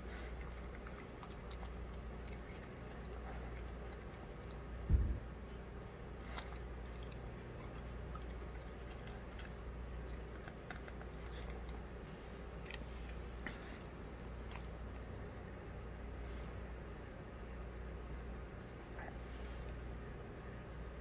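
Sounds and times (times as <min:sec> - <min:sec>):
dog chewing wet food: 0:00.0 - 0:04.9, 0:05.9 - 0:15.5
steady low hum: 0:00.0 - 0:21.0.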